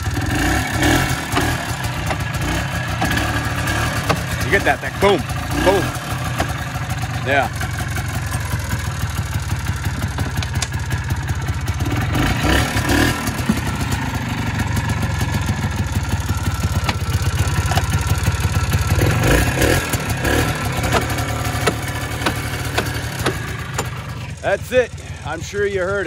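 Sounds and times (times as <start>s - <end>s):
atv engine running: 0.0s - 26.0s
transmission clunks: 0.7s - 6.6s, 9.2s - 11.2s, 14.7s - 25.0s.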